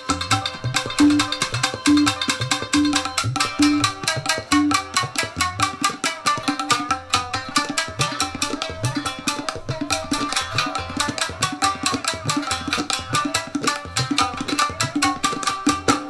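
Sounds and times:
plucked shamisen notes: 0.0 - 16.0
rapid tabla strokes: 0.0 - 16.0.

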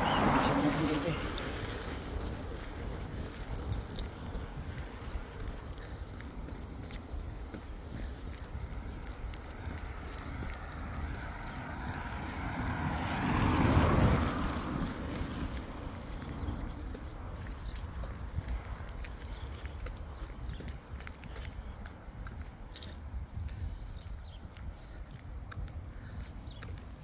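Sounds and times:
car tyres on wet road: 0.0 - 20.9
footsteps on footpath: 0.0 - 27.0
wind rumble on microphone: 0.0 - 27.0.

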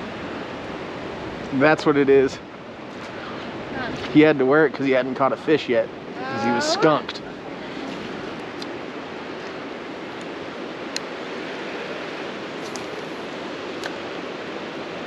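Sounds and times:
stream water flowing: 0.0 - 15.0.

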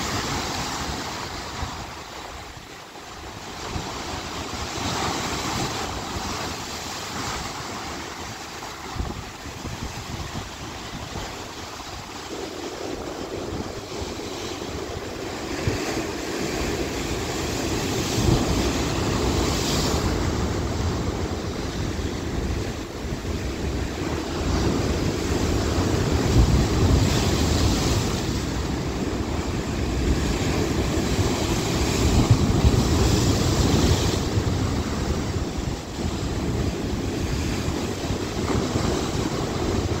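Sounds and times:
sea waves breaking over rocks: 0.0 - 40.0.

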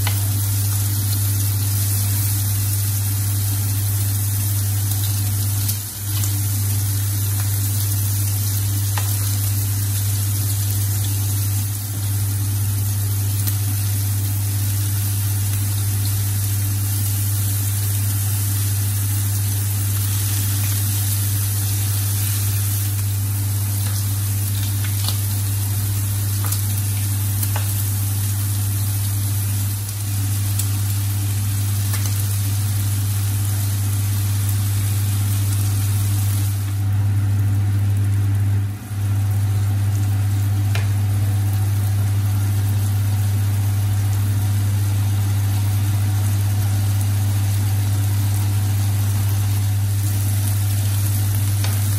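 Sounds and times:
food sizzling on a griddle: 0.0 - 51.9.

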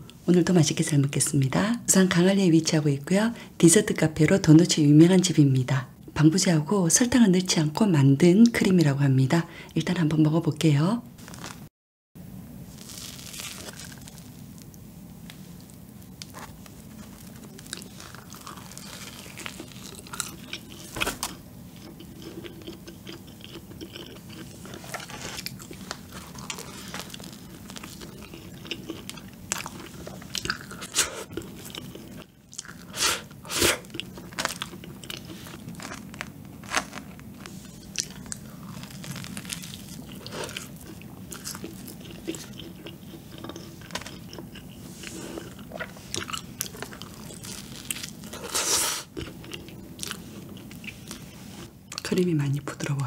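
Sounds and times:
steady low hum: 12.2 - 53.0
chewing and biting doughnut: 16.2 - 52.1.

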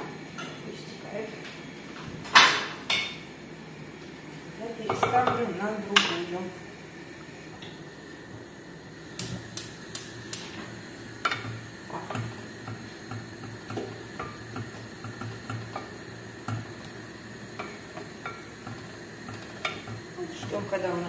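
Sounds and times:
gas igniter clicking: 9.1 - 18.6.

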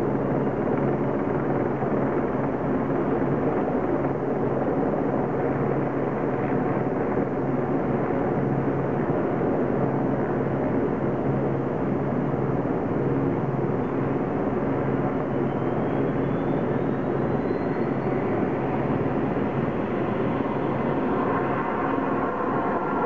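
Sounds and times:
helicopter engines idling: 13.2 - 23.0.

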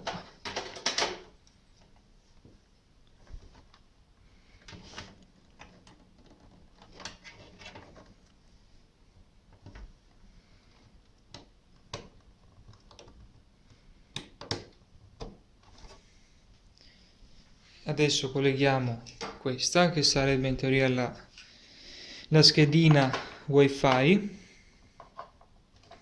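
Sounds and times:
cable rustling: 0.0 - 17.9.

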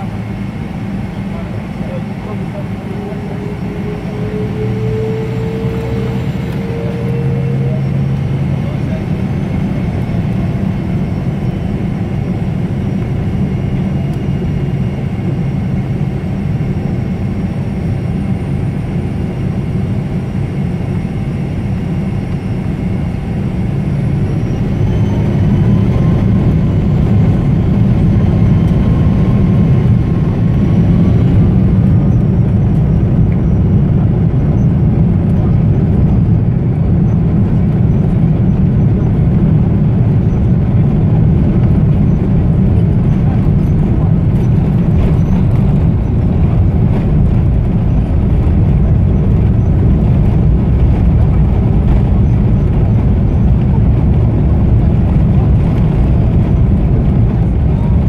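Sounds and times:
jet engines rumbling: 0.0 - 58.0
faint rising whine: 2.2 - 11.8.

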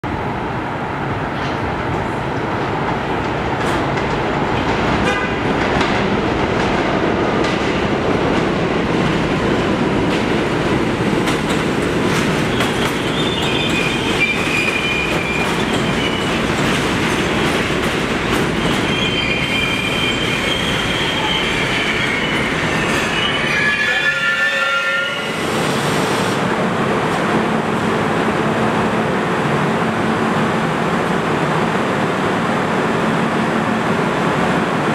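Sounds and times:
standing train hum: 0.0 - 34.9
train running noise: 0.0 - 34.9
wheel and brake squeal: 12.5 - 16.4, 18.6 - 25.4.

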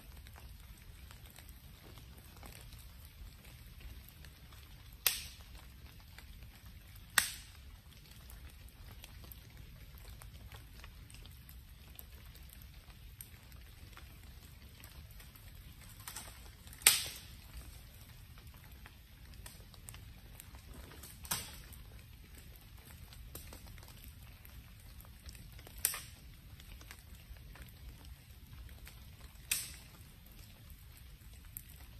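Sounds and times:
campfire crackling: 0.0 - 31.9
loud sharp fire pops: 4.9 - 5.7, 7.1 - 7.7, 15.7 - 18.6, 19.4 - 23.9, 25.3 - 26.3, 29.2 - 30.1.

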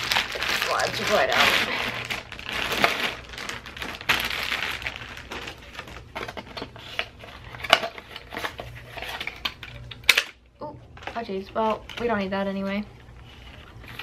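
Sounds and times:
paper label rustling: 0.0 - 10.1
packaging crinkling: 0.0 - 10.4.

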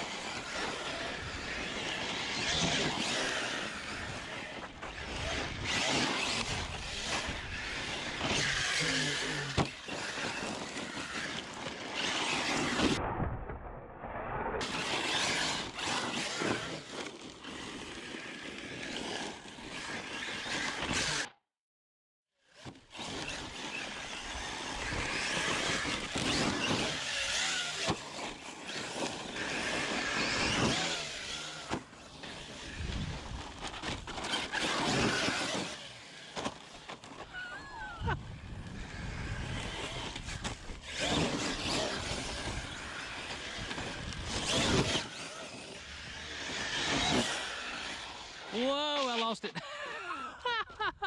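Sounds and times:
electric motor whine: 0.0 - 13.0, 37.7 - 48.6.

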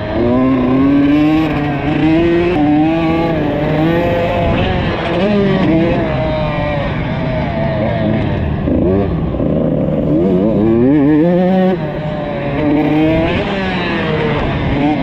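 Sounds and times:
motocross bike engine revving: 0.0 - 15.0.

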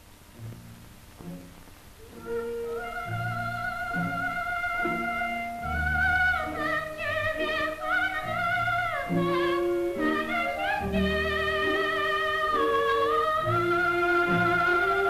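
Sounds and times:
orchestral accompaniment: 0.4 - 15.0
soprano singing with vibrato: 2.0 - 15.0.

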